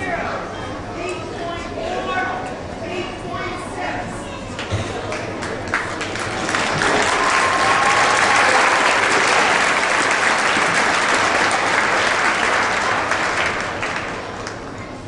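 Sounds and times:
crowd applauding: 0:05.0 - 0:14.7.

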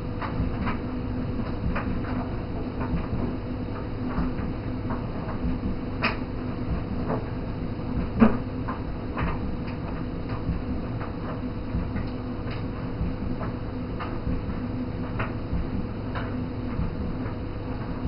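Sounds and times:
low steady hum and rumble: 0:00.0 - 0:18.0.

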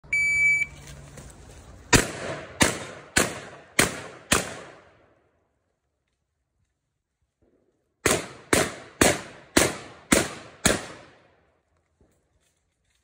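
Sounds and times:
shot timer beep: 0:00.0 - 0:00.7
shotgun firing with echo: 0:01.9 - 0:05.0, 0:08.0 - 0:11.2.

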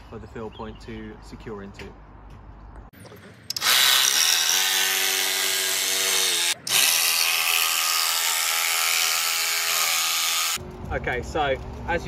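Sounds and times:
jigsaw sawing through plywood: 0:03.6 - 0:10.6.

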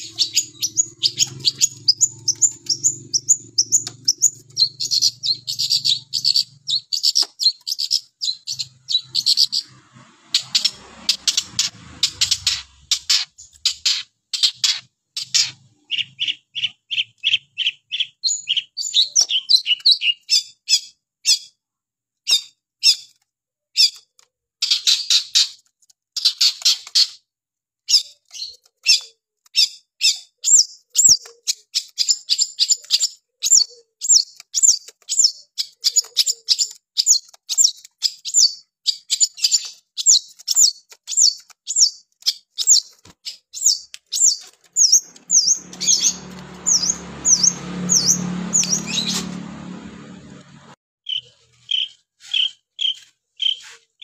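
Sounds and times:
shrike singing: 0:43.6 - 0:49.4.

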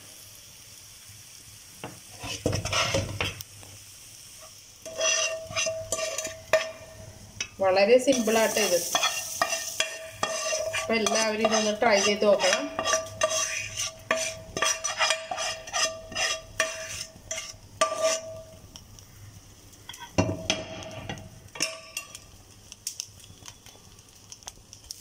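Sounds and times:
metal spoon stirring in steel pot: 0:02.2 - 0:03.3, 0:04.8 - 0:18.6, 0:19.9 - 0:22.2.

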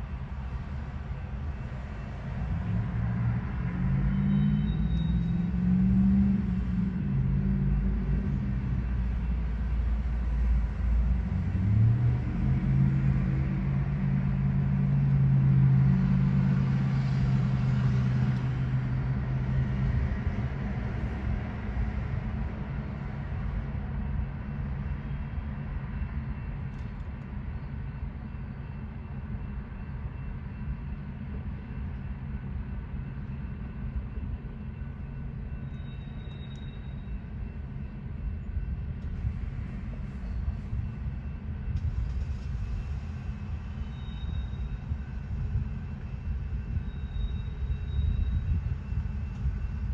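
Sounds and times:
freight train rumbling past: 0:00.0 - 0:49.9
cars driving by: 0:00.4 - 0:24.7.

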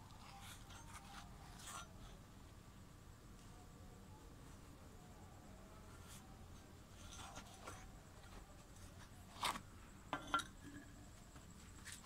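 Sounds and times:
metal scrape: 0:00.2 - 0:02.2, 0:05.8 - 0:08.0.

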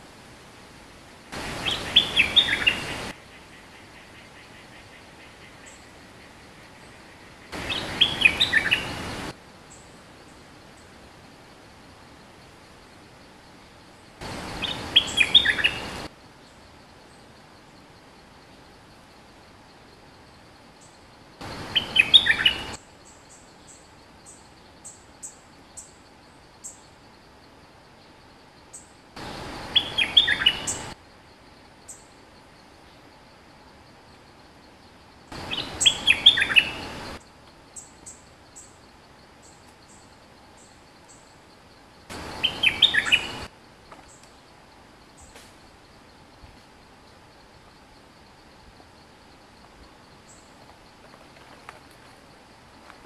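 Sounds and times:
faint high bird chirps: 0:01.6 - 0:09.9, 0:14.4 - 0:17.4, 0:20.8 - 0:26.0, 0:29.7 - 0:31.0, 0:35.0 - 0:44.5.

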